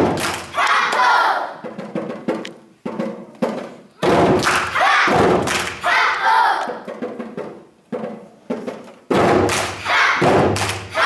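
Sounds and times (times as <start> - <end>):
children shouting in unison: 0.5 - 1.6, 4.7 - 6.8, 9.8 - 11.0
djembe drums: 1.5 - 5.8, 6.8 - 11.0.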